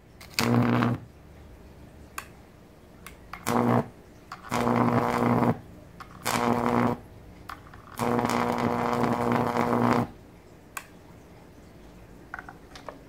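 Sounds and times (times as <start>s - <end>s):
electric arc buzzing: 0.0s - 1.1s, 3.3s - 10.2s.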